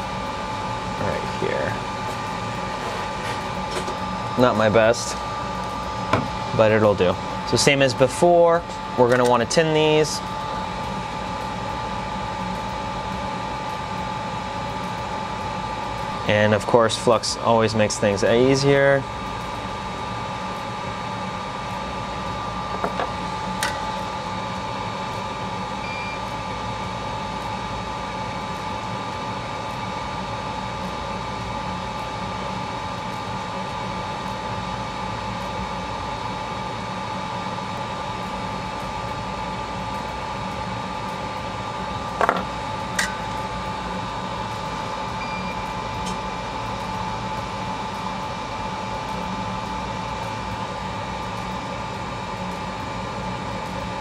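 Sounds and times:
machine hum with high whine: 0.0s - 54.0s.

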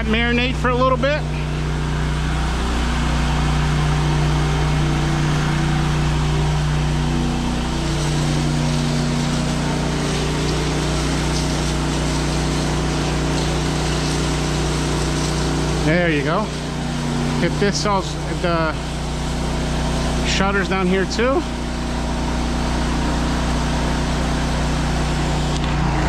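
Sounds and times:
pressure washer engine drone: 0.0s - 26.0s
spray wand hissing: 5.3s - 17.8s.

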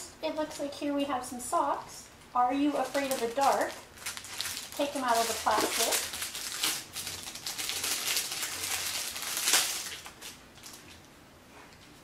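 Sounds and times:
plastic packaging crinkling: 2.6s - 11.1s.

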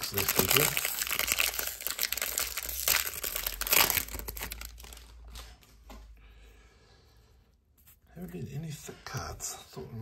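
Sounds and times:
wrapper crinkling and tearing: 0.0s - 5.7s.

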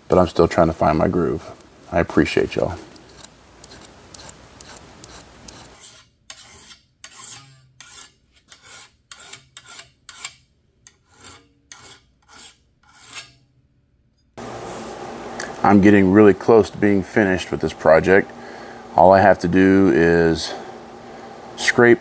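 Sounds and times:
file rasping across steel: 2.9s - 13.6s.

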